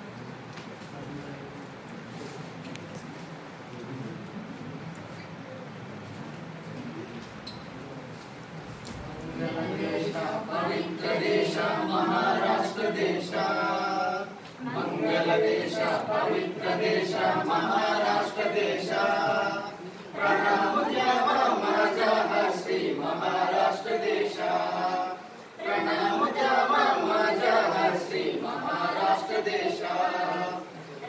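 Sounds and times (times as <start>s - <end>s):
group singing unaccompanied: 9.1s - 31.0s.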